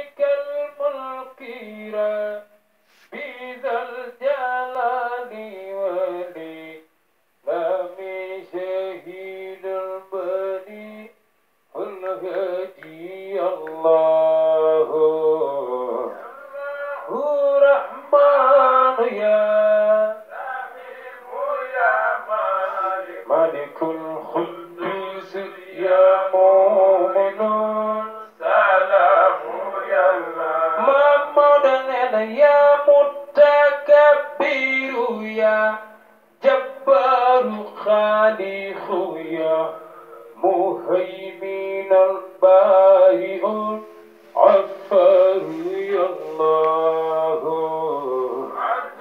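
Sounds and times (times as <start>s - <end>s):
men singing a chant: 11.8s - 35.8s, 36.4s - 43.8s, 44.4s - 49.0s.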